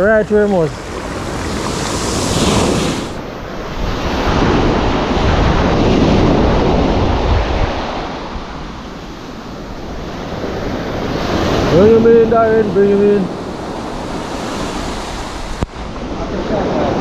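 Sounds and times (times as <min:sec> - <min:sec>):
wind buffeting microphone: 0:00.0 - 0:17.0
surf washing up gravel beach: 0:00.2 - 0:03.2.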